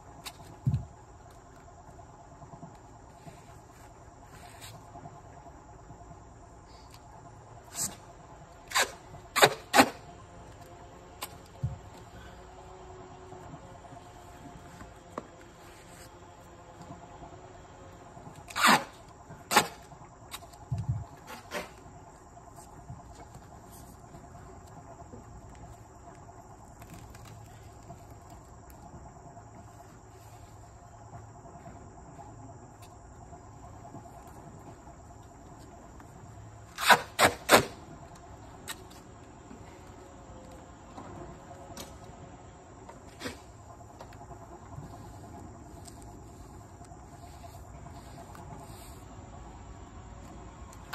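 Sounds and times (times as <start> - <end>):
insect chirring: 41.6 - 50.9.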